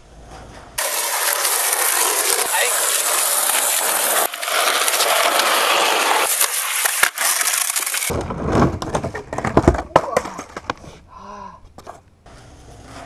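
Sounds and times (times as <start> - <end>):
skateboard wheels rumbling on wood: 0.0 - 11.0, 11.7 - 13.0
skateboard impacts: 0.1 - 11.0
skateboard rolling hiss: 0.8 - 8.1.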